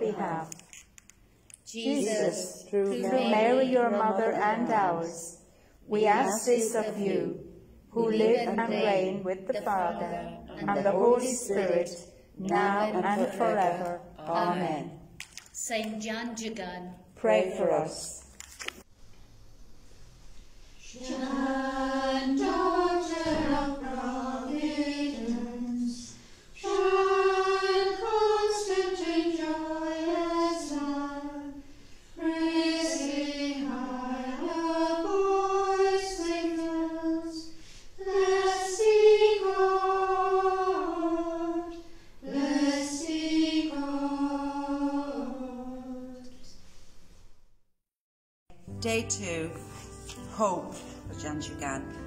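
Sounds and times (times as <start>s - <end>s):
choir singing a hymn: 0.0s - 0.5s, 1.7s - 15.0s, 20.8s - 46.6s.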